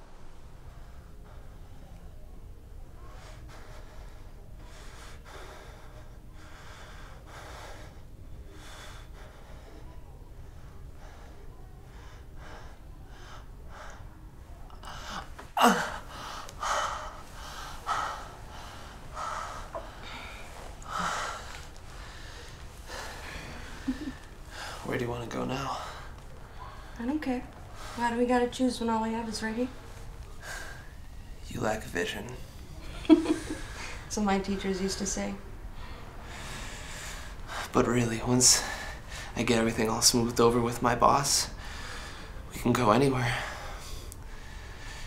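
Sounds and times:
man breathing heavily: 3.0s - 28.1s, 29.8s - 31.5s, 35.7s - 39.4s, 41.5s - 42.5s, 43.2s - 45.0s.

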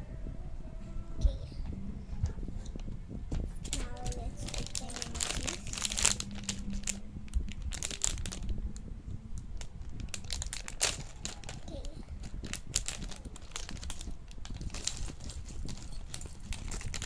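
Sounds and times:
plastic packaging crinkling: 3.7s - 8.6s, 9.6s - 17.0s.

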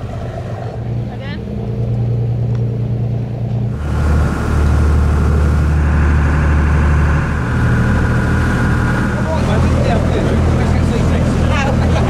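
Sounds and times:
boat engine drone: 0.0s - 12.0s
wind rushing: 3.7s - 10.9s
water rushing: 3.7s - 12.0s.

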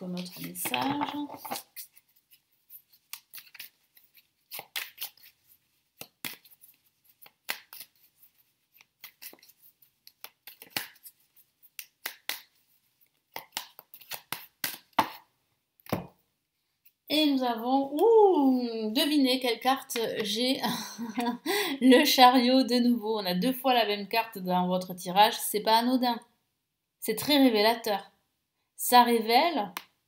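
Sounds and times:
cards being shuffled: 0.0s - 16.2s.

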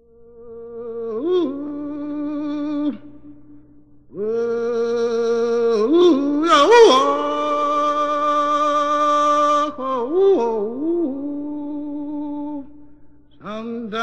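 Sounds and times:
man singing unaccompanied holler: 4.2s - 12.6s, 13.4s - 14.0s.

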